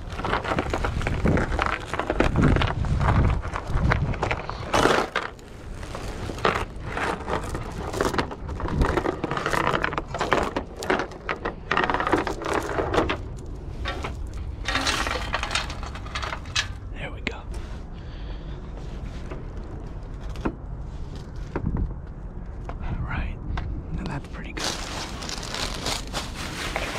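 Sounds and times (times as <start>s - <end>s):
metal chain rattling on plastic: 6.3s - 16.9s.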